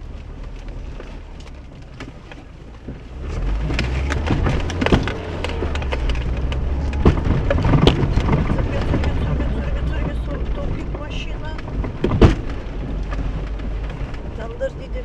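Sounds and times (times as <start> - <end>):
car engine droning low: 0.0 - 15.0
car jolting over dirt track: 0.0 - 15.0
sharp crackling and knocking: 0.0 - 15.0.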